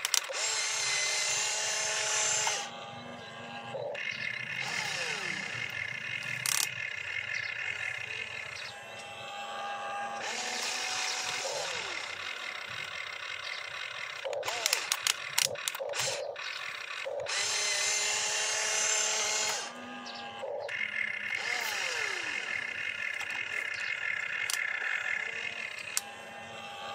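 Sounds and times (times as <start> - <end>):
rc excavator motors whining: 0.0 - 26.9.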